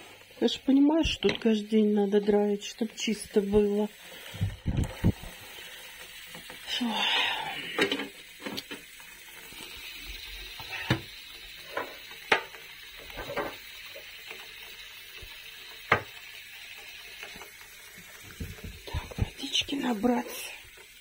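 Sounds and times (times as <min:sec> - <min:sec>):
kitchen items clicking and knocking: 0:10.6 - 0:13.7.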